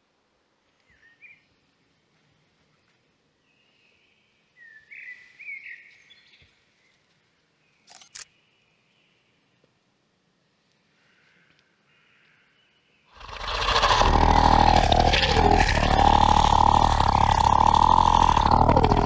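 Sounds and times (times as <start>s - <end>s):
birds chirping: 12.0s - 19.0s.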